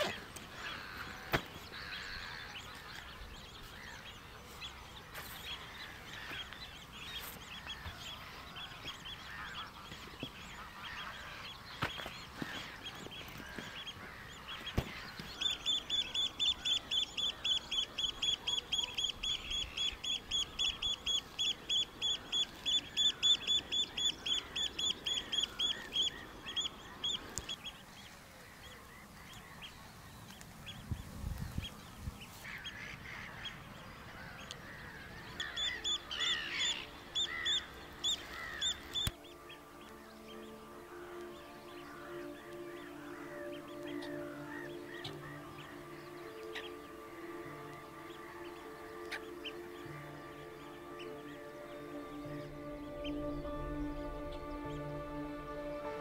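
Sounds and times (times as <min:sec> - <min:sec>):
faint background birds: 0:00.0 - 0:56.0
bird calling high notes: 0:05.2 - 0:27.7, 0:35.3 - 0:56.0.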